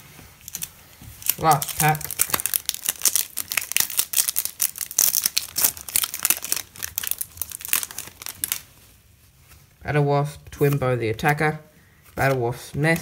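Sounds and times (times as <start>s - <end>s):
foil wrapper crinkling: 0.5s - 8.9s.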